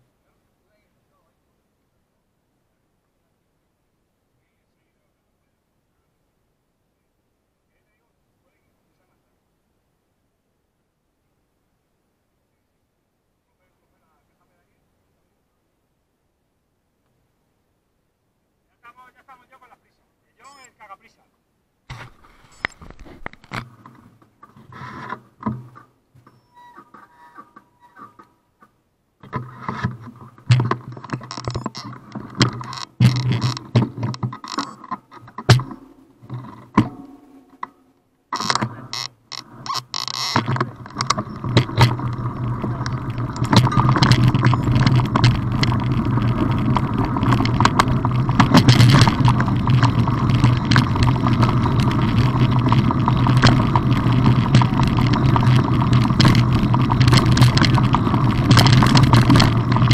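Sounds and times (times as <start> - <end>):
bike rattling over stones: 21.9 - 26.0, 29.2 - 37.7, 38.4 - 59.9
bike clicks and knocks: 29.2 - 37.8, 38.4 - 59.9
tyres rumbling on gravel: 38.4 - 59.9.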